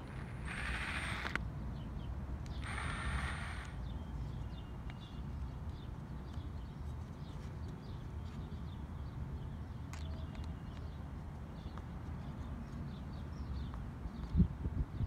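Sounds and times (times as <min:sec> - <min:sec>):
cordless drill boring into wood: 0:00.0 - 0:01.4, 0:02.6 - 0:03.8
screwdriver ticks and chirps: 0:00.0 - 0:01.4, 0:02.4 - 0:03.9.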